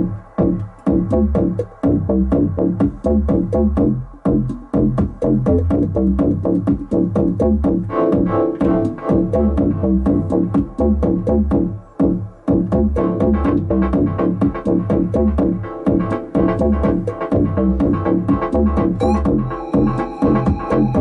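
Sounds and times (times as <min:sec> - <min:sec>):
drum machine beat: 0:00.0 - 0:21.0
synth bass line: 0:00.0 - 0:21.0
hi-hat ticks: 0:02.8 - 0:07.5
sustained synth chords: 0:07.4 - 0:21.0.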